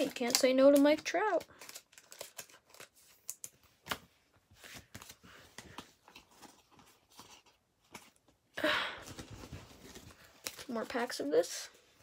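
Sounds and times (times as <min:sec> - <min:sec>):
cards clicking and rustling: 0:00.0 - 0:08.4.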